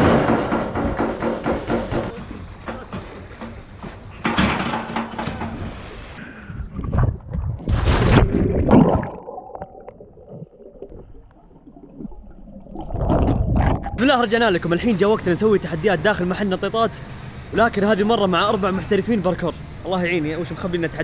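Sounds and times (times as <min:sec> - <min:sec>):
body splashing into pool: 0:06.7 - 0:11.1.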